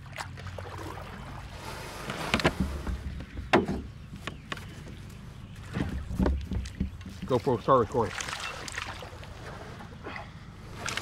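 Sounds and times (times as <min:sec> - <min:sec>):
low steady rumble: 0:00.0 - 0:11.0
gear knocking against kayak: 0:05.6 - 0:07.4.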